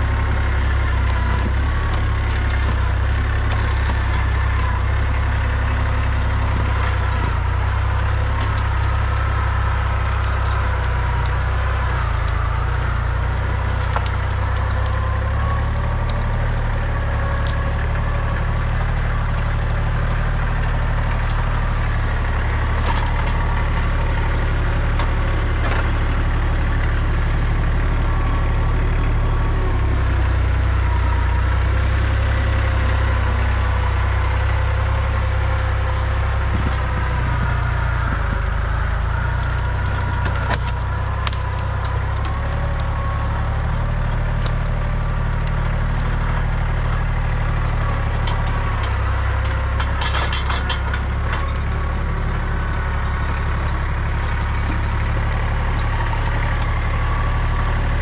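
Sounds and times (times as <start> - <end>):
branches cracking and snapping: 0.0 - 58.0
tractor diesel engine under load: 0.0 - 58.0.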